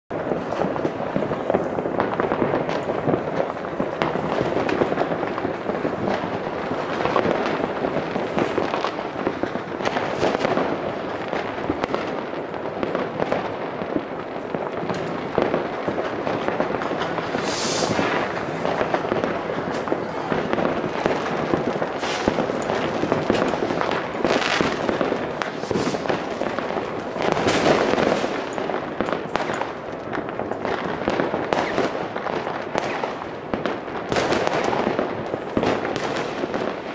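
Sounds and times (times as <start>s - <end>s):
fireworks crackling and banging: 0.1s - 36.9s
loud hissing bursts: 17.3s - 18.3s.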